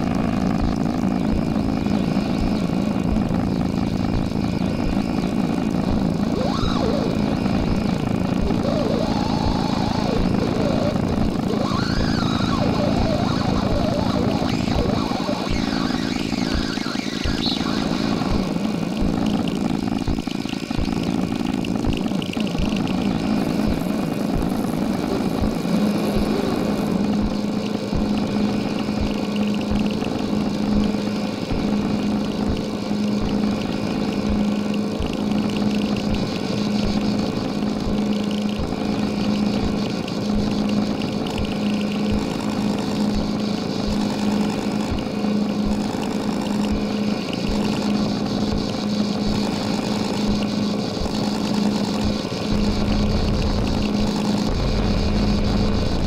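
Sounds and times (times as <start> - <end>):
pulsing low hum: 0.0 - 56.0
rumbling electronic noise drone: 0.0 - 56.0.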